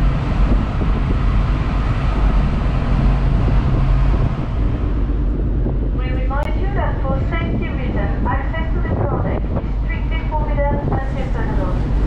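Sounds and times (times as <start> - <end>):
rushing noise: 0.0 - 12.0.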